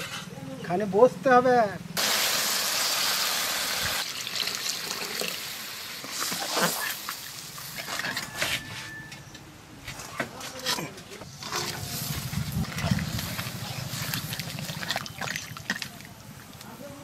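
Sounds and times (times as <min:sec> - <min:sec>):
water pouring into a pan: 0:02.0 - 0:07.6
metal spatula scraping a pan: 0:11.3 - 0:14.2.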